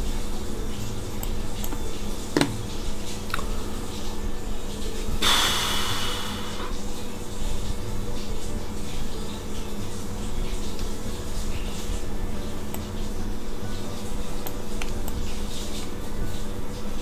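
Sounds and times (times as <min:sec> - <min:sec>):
electrical hum: 0:00.0 - 0:17.0.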